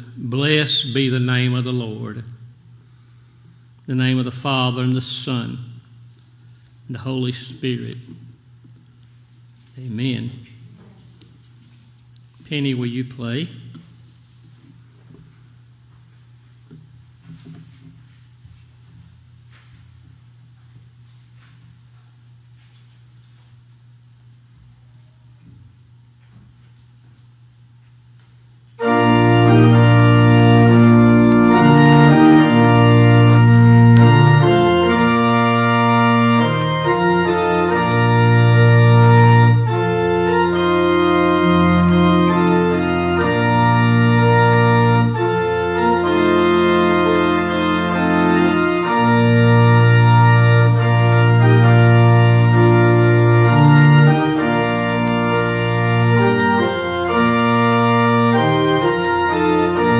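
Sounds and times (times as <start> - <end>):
pipe organ playing held chords: 0.0 - 8.6, 28.8 - 59.9.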